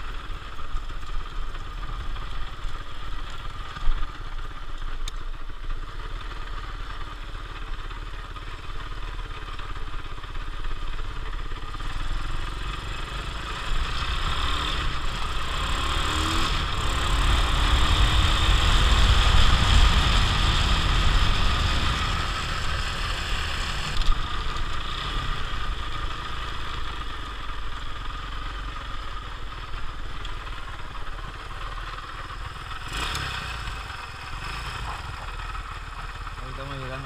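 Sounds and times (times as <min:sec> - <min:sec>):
motorcycle engine running: 0:00.0 - 0:37.0
wind rumble on microphone: 0:17.2 - 0:22.6.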